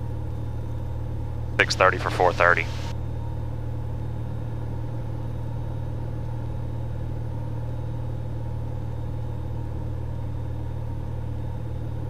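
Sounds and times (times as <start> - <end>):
plane engine and propeller droning: 0.0 - 12.0.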